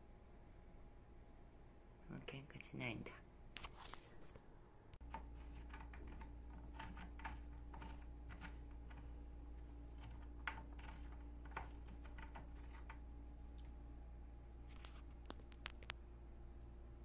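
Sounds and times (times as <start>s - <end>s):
hex key clicking and scraping: 5.0s - 13.6s.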